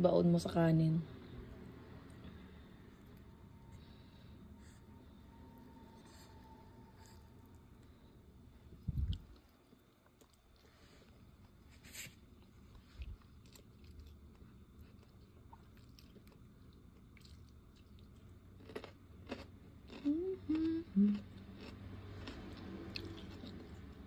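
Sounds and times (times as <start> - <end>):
person chewing: 8.8 - 11.6, 12.3 - 24.0
person humming: 20.0 - 21.3.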